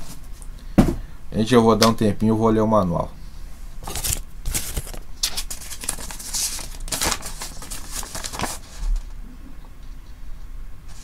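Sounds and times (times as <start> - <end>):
paper rustling and crinkling: 3.8 - 9.2.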